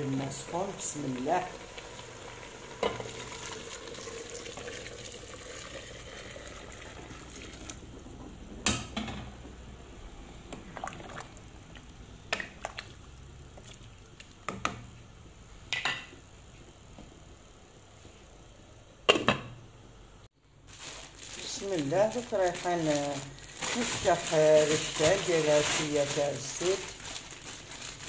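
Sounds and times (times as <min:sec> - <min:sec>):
hot water pouring into pot: 0:00.0 - 0:07.9, 0:10.7 - 0:11.5.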